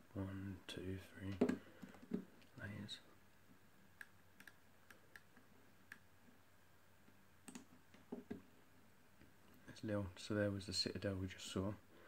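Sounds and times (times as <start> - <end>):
computer mouse clicks: 4.0 - 6.1, 7.4 - 7.7.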